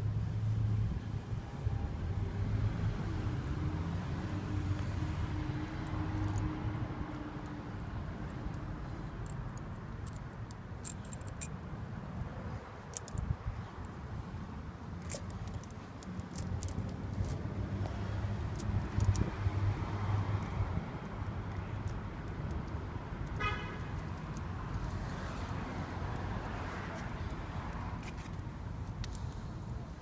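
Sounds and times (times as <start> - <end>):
tire chain links clinking: 5.8 - 6.6, 7.4 - 11.6, 12.9 - 14.0, 15.0 - 17.6, 18.4 - 19.4.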